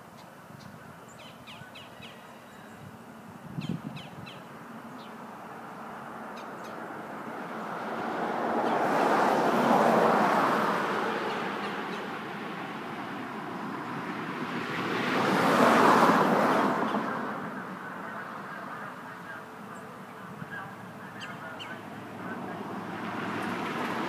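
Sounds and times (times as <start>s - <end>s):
birds calling: 0.1s - 2.9s, 3.6s - 6.9s, 11.2s - 12.2s, 16.8s - 22.6s
passing vehicle rushing: 4.5s - 24.0s.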